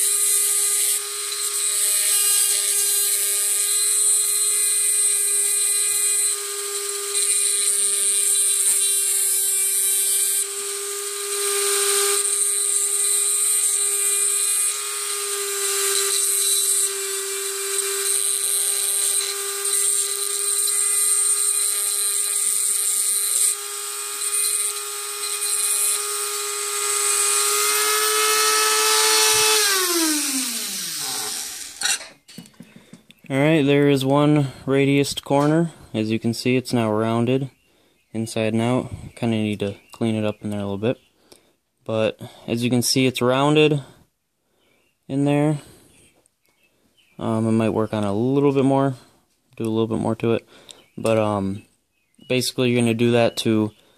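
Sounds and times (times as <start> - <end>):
rotary tool whine: 0.0 - 32.2
bit grinding metal: 0.0 - 32.4.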